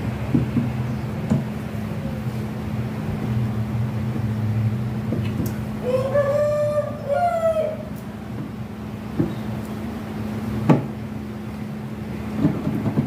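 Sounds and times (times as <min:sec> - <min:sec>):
steady low hum: 0:00.0 - 0:13.0
rooster crowing: 0:05.8 - 0:08.0.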